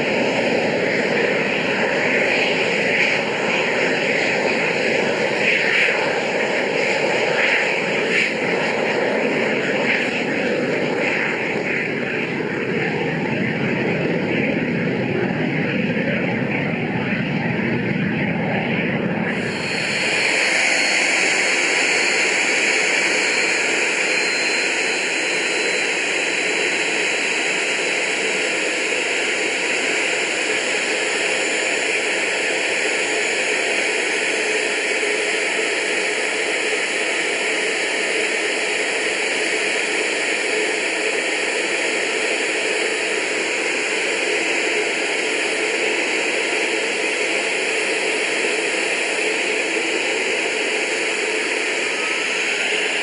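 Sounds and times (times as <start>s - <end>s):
turbojet engine hiss: 19.1s - 53.0s
rushing airflow: 19.3s - 25.1s.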